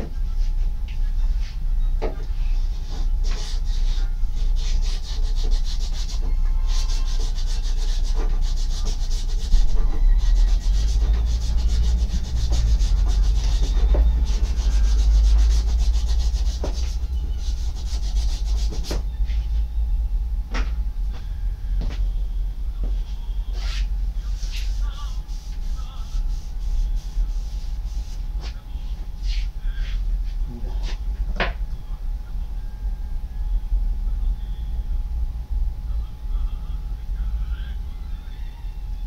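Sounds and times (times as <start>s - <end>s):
plastic pipe being sanded by hand: 3.2s - 19.0s
low rumble: 9.5s - 28.0s, 29.0s - 39.0s.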